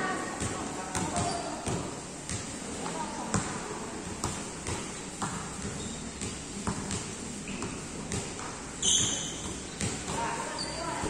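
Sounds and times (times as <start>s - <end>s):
basketball bouncing on hard floor: 0.4s - 2.5s, 3.3s - 3.6s, 4.2s - 10.4s.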